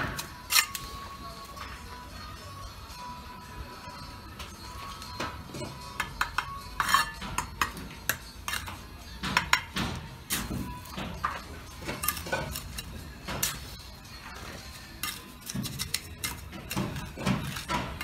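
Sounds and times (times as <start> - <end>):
blocks clinking and knocking: 5.2 - 13.8
trowel scraping mortar: 5.7 - 8.8, 10.3 - 18.0.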